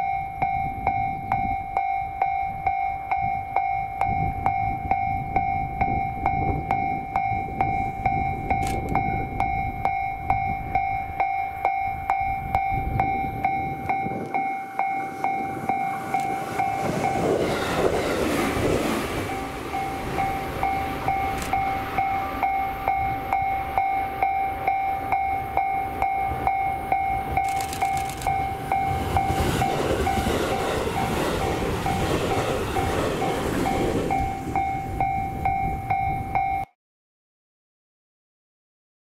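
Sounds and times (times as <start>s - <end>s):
level crossing alarm ringing: 0.0s - 36.7s
train wheels rumbling: 12.0s - 36.4s.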